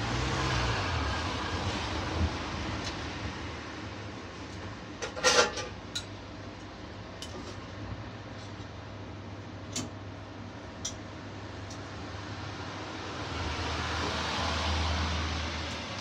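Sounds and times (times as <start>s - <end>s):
steel kitchen gear clattering: 5.0s - 6.1s.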